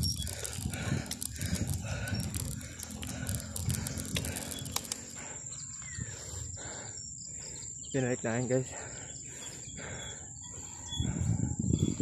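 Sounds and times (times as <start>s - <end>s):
bike rattling over concrete: 0.0s - 6.9s
high insect buzz: 0.0s - 10.0s.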